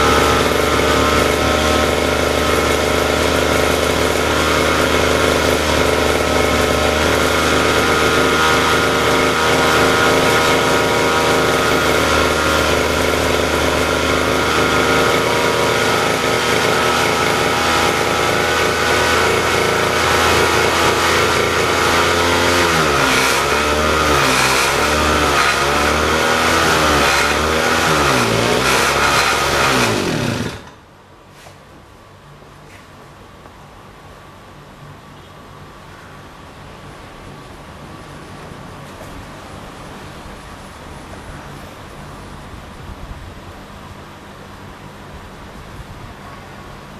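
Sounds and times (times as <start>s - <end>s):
lawn mower engine running: 0.0s - 31.4s.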